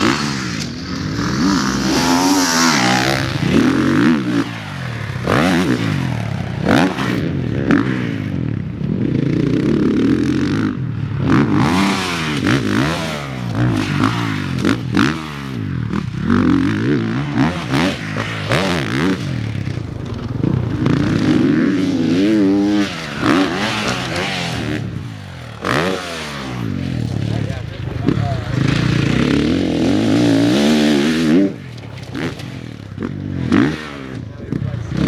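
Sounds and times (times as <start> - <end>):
motocross bike engines revving: 0.0 - 35.0.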